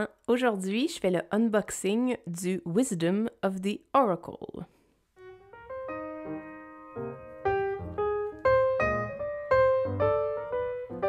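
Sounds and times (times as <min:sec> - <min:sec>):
piano melody with chords: 0:05.2 - 0:11.0.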